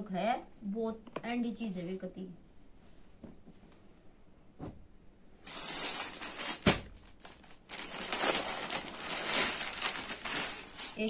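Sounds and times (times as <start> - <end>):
plastic packet crinkling: 5.4 - 11.0.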